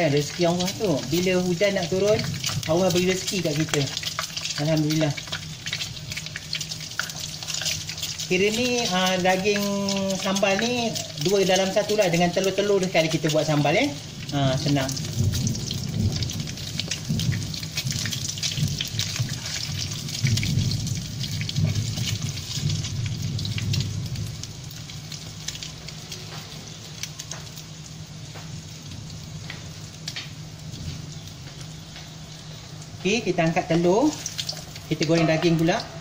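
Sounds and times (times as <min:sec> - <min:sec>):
eggs deep-frying in hot oil: 0:00.0 - 0:36.0
crackling pops: 0:29.4 - 0:30.4.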